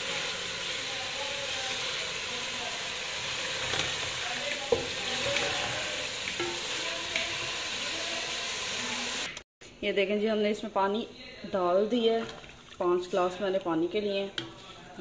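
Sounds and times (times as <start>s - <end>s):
meat sizzling in oil: 0.0s - 9.4s
wooden spatula scraping pot: 14.2s - 15.0s.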